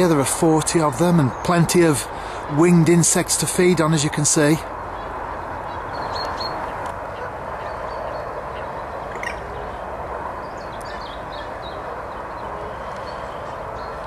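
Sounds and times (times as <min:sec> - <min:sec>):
high bird chirps: 0:07.6 - 0:09.7.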